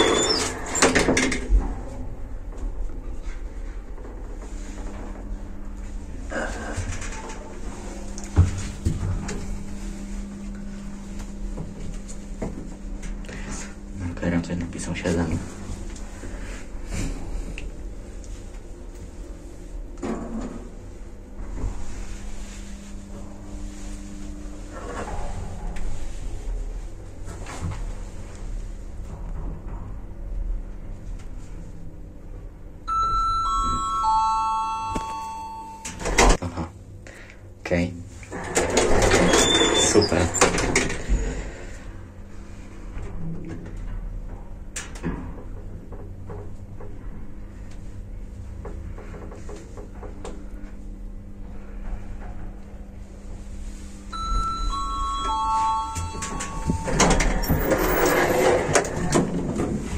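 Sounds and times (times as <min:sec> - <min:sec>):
elevator doors clattering open: 0:00.0 - 0:01.7, 0:38.3 - 0:41.2, 0:54.2 - 0:59.9
elevator humming: 0:00.0 - 0:37.0, 0:43.8 - 0:59.9
elevator arrival chime: 0:32.9 - 0:36.4, 0:54.1 - 0:58.6.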